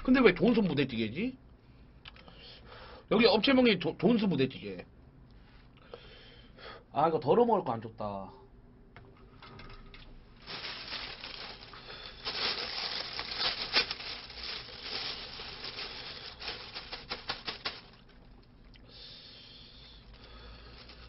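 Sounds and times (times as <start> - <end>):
plastic bag crinkling: 10.4 - 18.5, 20.1 - 21.0.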